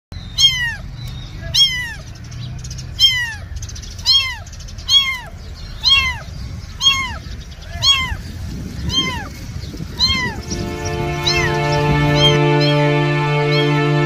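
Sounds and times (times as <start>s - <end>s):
kitten meowing: 0.3s - 2.1s, 3.0s - 8.2s, 8.8s - 9.3s, 9.9s - 10.5s, 11.2s - 11.6s.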